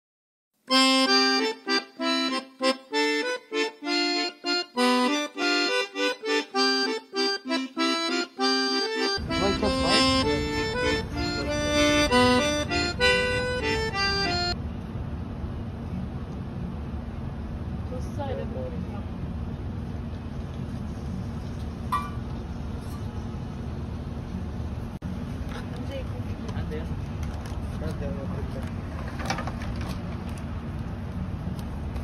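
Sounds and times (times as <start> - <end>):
bouncy instrumental music: 0.7 - 14.6.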